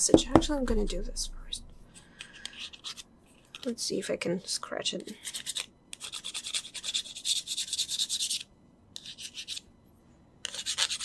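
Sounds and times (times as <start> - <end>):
metal ruler scraping scratch card: 2.4 - 3.0, 5.2 - 8.4, 9.0 - 9.6, 10.4 - 11.0.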